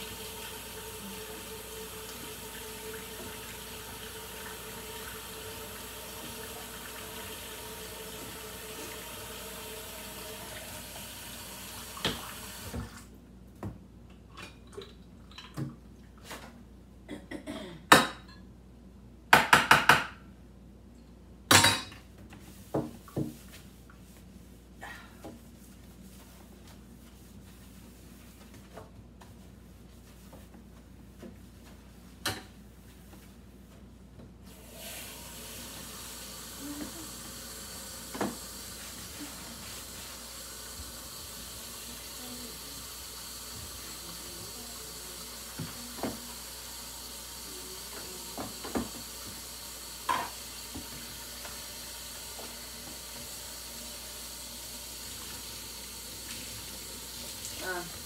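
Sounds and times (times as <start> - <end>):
water running into sink: 0.0 - 13.1, 34.5 - 58.0
dishes clinking in a steel sink: 50.0 - 50.4.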